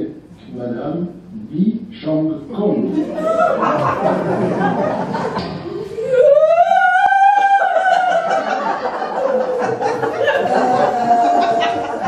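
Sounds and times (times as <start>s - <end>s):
women wailing in comic sobs: 5.8s - 12.0s.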